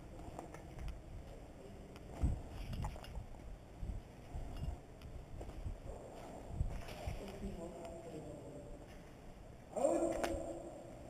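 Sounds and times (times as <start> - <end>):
footsteps low thuds: 5.1 - 7.1.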